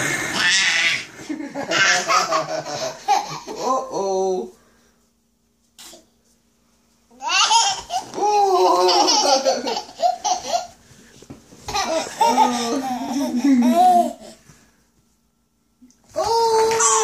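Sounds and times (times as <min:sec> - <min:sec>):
toddler laughing: 0:01.6 - 0:03.7, 0:07.2 - 0:10.8, 0:11.7 - 0:14.4.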